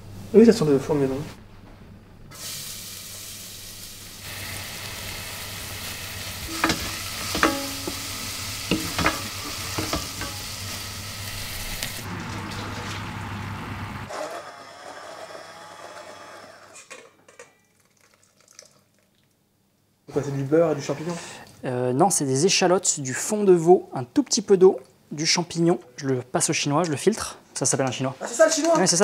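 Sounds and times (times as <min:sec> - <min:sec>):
mushrooms sizzling in a pan: 0:02.4 - 0:12.1
utensil knocking against pan: 0:06.5 - 0:10.4.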